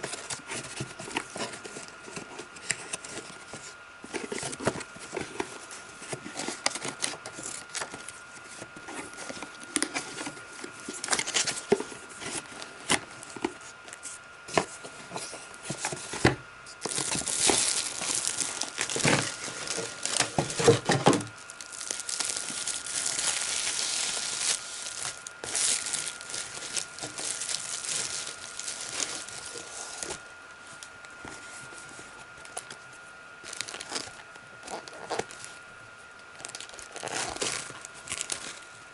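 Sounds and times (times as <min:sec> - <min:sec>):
paper packaging rustling: 0:00.0 - 0:30.3, 0:33.4 - 0:35.6, 0:36.4 - 0:38.7
plastic packaging crinkling: 0:14.6 - 0:30.9, 0:33.4 - 0:35.6, 0:36.3 - 0:38.7.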